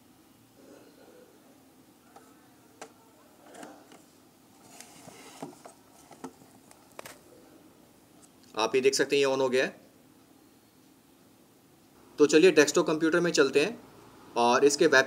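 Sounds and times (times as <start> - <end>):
plastic film rustling: 4.5 - 7.2.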